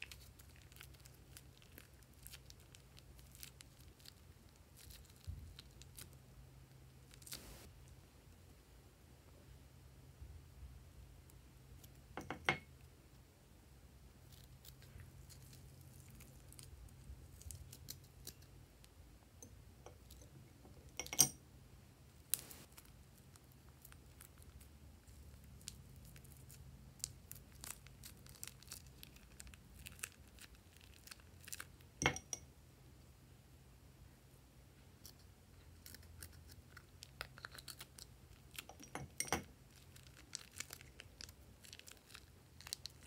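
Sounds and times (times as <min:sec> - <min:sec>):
plastic piping bag crinkling: 0:00.0 - 0:06.2, 0:07.0 - 0:07.7, 0:22.2 - 0:31.9, 0:39.5 - 0:43.0.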